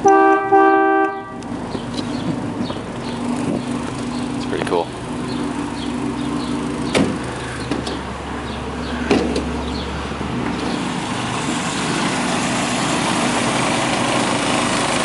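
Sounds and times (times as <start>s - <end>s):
car engine idling: 0.0s - 15.0s
sharp knocks: 6.9s - 8.0s, 9.0s - 9.6s.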